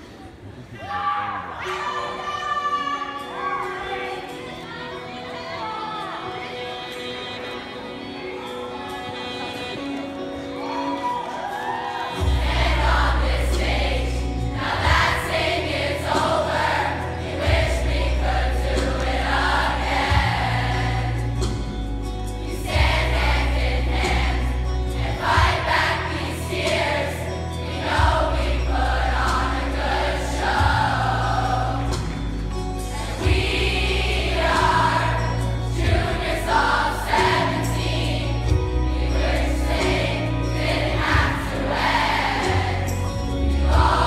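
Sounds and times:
choir of young voices singing: 11.1 - 21.7, 22.4 - 44.0.

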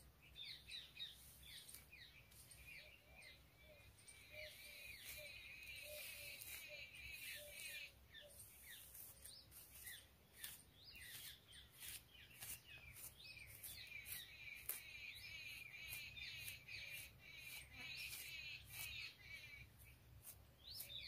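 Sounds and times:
small birds chirping: 0.0 - 21.0
comb swishing through hair: 8.4 - 13.8.

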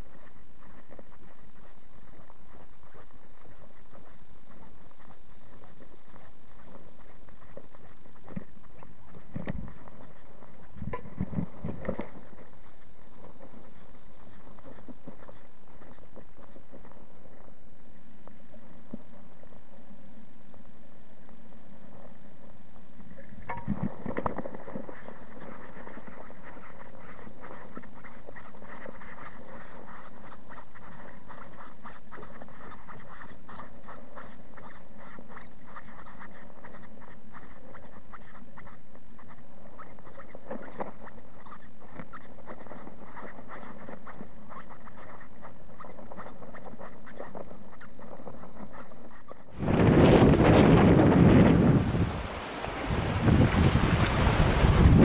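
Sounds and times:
nestlings cheeping: 0.0 - 18.0, 23.5 - 50.9
wind blowing on microphone: 8.3 - 10.0, 10.6 - 12.5, 49.6 - 55.0.

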